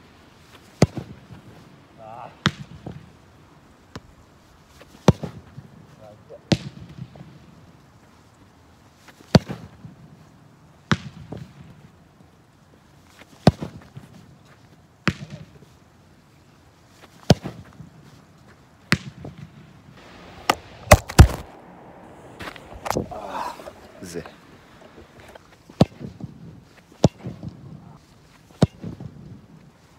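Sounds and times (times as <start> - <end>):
ball thudding against board: 20.3 - 21.5, 22.4 - 23.8.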